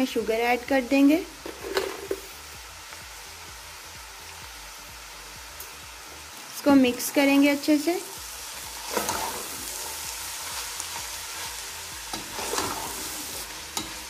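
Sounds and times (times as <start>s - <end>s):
food sizzling in a pan: 0.0s - 14.0s
metal spoon stirring: 12.1s - 14.0s.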